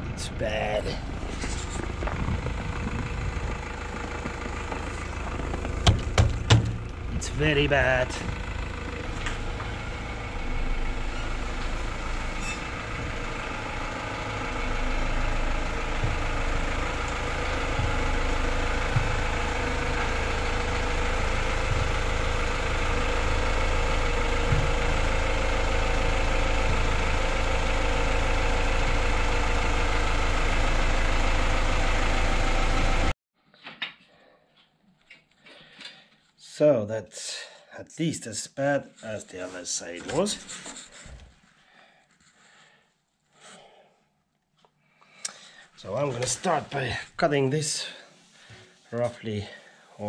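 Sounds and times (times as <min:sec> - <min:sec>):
van engine at low revs: 0:00.0 - 0:33.2, 0:45.3 - 0:50.0.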